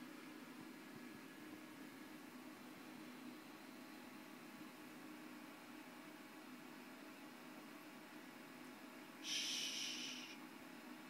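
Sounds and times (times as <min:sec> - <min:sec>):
breathy exhale hiss: 0:09.2 - 0:10.4.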